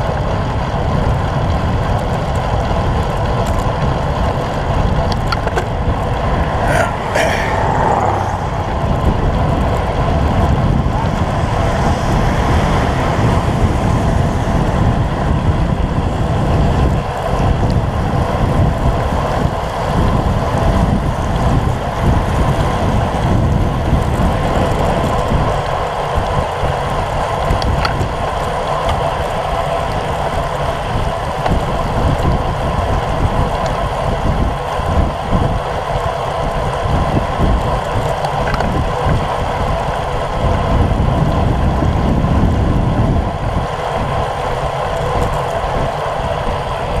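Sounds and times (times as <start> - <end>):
bicycle tyres hissing on wet road: 0.0 - 47.0
wind buffeting microphone: 0.0 - 47.0.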